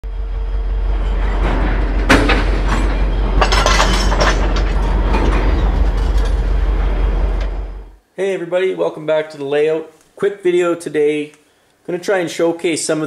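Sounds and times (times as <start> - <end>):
train rumbling: 0.0 - 8.0
metallic clanks and rattles: 0.8 - 7.9.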